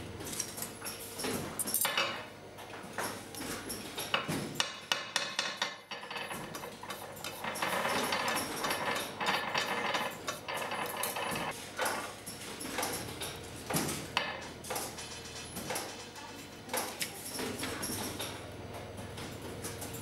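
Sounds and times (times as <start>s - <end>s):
taps and knocks on workbench: 4.2s - 5.8s.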